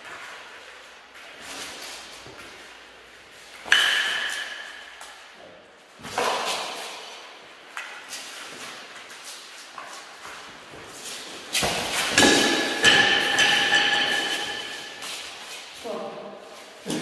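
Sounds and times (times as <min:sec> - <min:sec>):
dull metal clash: 0:11.6 - 0:15.0
armour clinking: 0:12.1 - 0:15.5.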